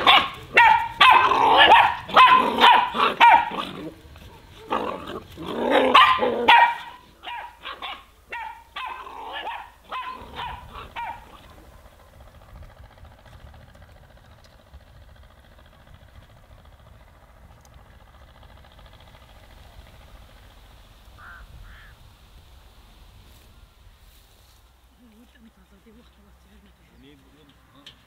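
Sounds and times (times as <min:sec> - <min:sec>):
puppies yapping and barking: 0:00.0 - 0:11.6.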